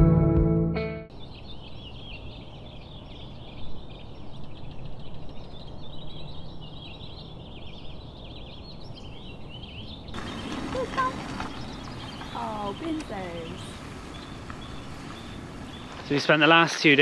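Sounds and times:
small birds chirping: 0:01.1 - 0:17.0
low outdoor rumble: 0:10.2 - 0:16.4.

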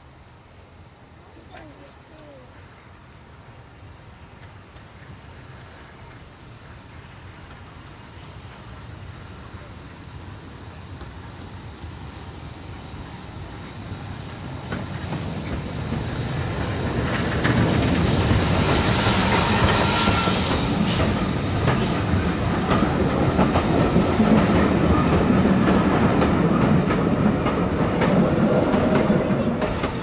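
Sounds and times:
steam hiss: 0:00.0 - 0:30.0
steam locomotive passing: 0:00.0 - 0:30.0.

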